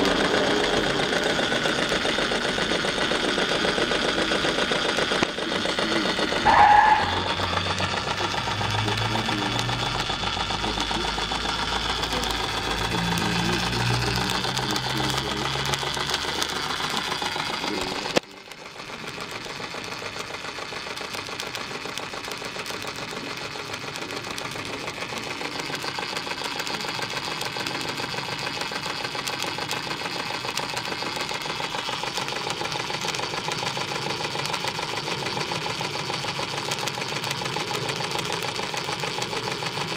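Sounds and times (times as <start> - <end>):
steam engine clattering: 0.0 - 39.9
short high tone: 6.5 - 7.5.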